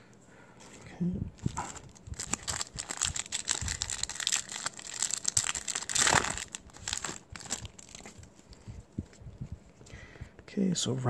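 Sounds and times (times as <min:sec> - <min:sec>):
foil wrapper crinkling and tearing: 0:01.4 - 0:08.6.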